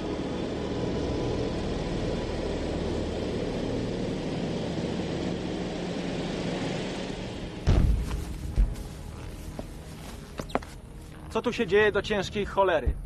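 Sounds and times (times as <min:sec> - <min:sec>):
engines droning: 0:00.0 - 0:13.0
loud heavy bang: 0:07.6 - 0:08.7.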